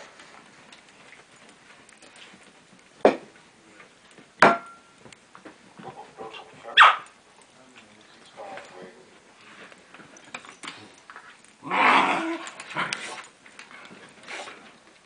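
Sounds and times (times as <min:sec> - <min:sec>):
dog yelps: 0:06.8 - 0:07.1.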